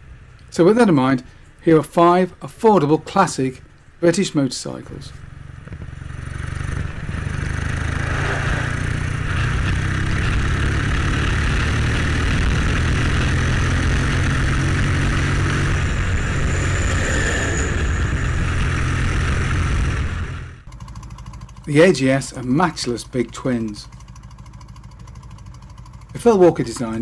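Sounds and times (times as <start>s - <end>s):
road noise: 0.0s - 27.0s
motorcycle engine running: 5.1s - 27.0s
wind noise: 6.6s - 20.5s.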